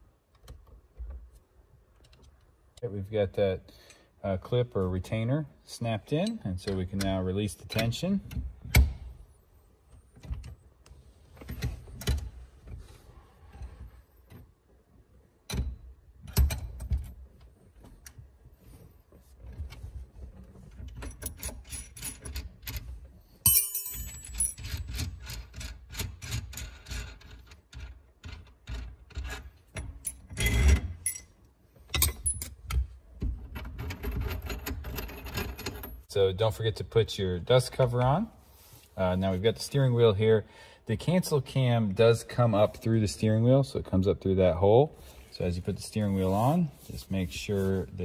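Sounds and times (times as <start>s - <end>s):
metal clicking and clinking: 20.8s - 26.1s.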